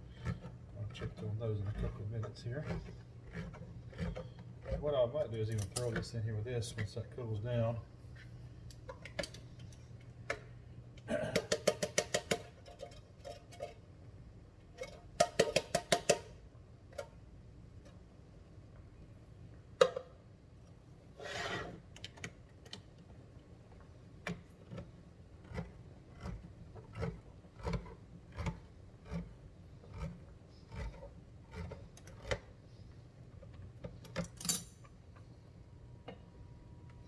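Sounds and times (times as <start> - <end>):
spoon knocking and scraping pot: 11.4 - 13.8, 14.8 - 16.3.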